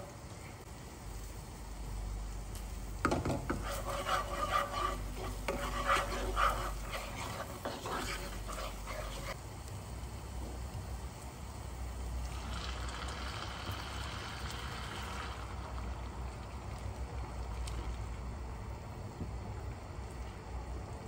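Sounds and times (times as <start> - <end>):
tomato paste sizzling: 0.0 - 19.1
wooden spoon scraping a pan: 3.0 - 9.4.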